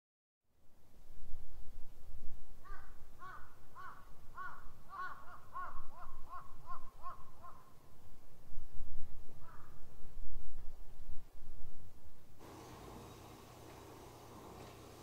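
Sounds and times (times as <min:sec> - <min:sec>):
crow cawing: 0:02.6 - 0:07.7, 0:09.4 - 0:09.8.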